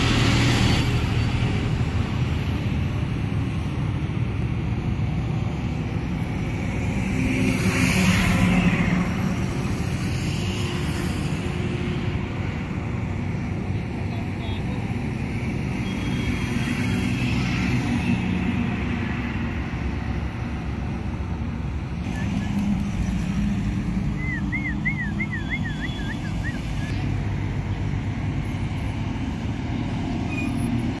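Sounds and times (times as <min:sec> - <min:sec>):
truck diesel engines rumbling: 0:00.0 - 0:31.0
high warbling whistle: 0:24.2 - 0:26.9.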